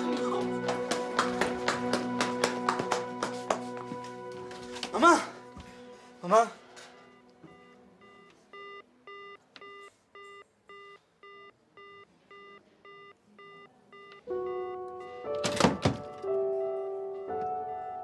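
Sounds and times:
music: 0:00.0 - 0:07.7, 0:14.3 - 0:18.0
telephone busy tone beeps: 0:07.0 - 0:15.4.

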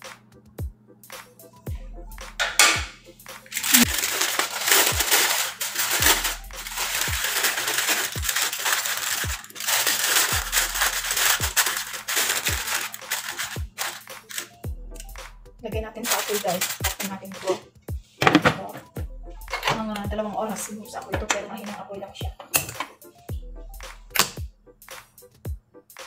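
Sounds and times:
music with deep thumping beat: 0:00.0 - 0:04.0, 0:06.0 - 0:07.3, 0:09.2 - 0:09.6, 0:10.3 - 0:11.8, 0:12.5 - 0:12.8, 0:13.6 - 0:16.0, 0:17.8 - 0:18.3, 0:18.9 - 0:20.4, 0:23.3 - 0:26.0
aluminium foil crinkling: 0:03.5 - 0:14.6, 0:16.0 - 0:17.6.

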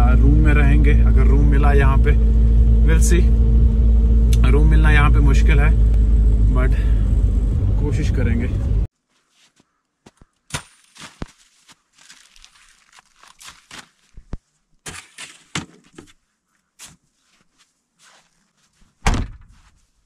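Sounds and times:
camping gear rustling and knocking: 0:08.9 - 0:20.0
footsteps crunching in snow: 0:08.9 - 0:20.0
heavy thump: 0:19.0 - 0:19.6.

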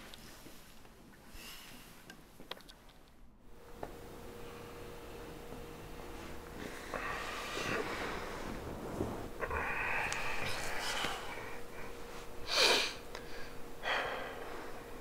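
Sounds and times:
person sniffing: 0:12.4 - 0:13.0.

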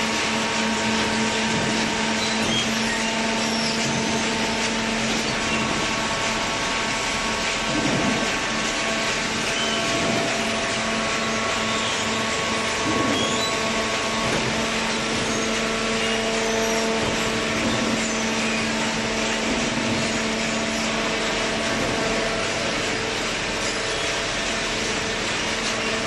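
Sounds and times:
baler machine humming and whining: 0:00.0 - 0:26.0.

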